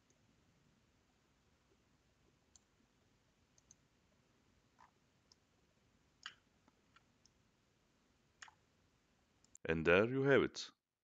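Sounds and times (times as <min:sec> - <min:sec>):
computer mouse clicks: 0:03.6 - 0:03.8, 0:06.2 - 0:07.4, 0:08.4 - 0:08.6.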